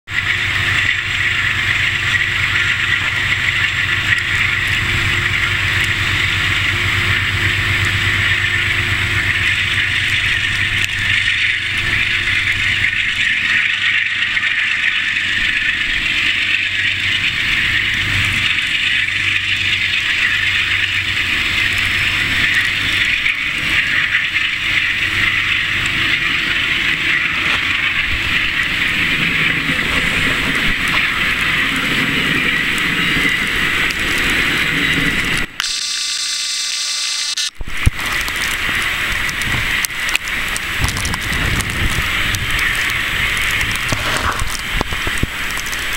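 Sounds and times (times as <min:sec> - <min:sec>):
train coaches rolling past: 0:00.1 - 0:35.6.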